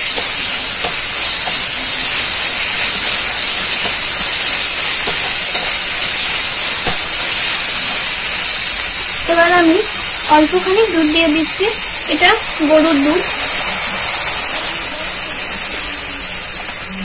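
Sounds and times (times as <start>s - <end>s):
paste sizzling in oil: 0.0s - 17.0s.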